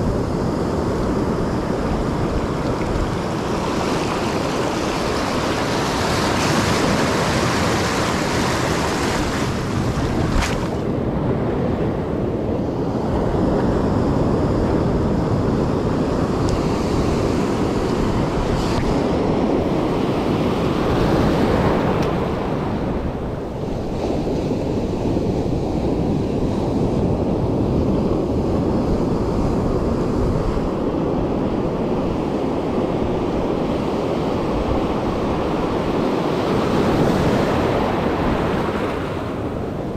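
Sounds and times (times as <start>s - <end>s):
ocean surf breaking: 0.0s - 12.3s, 30.5s - 39.9s
wind buffeting microphone: 0.0s - 39.9s.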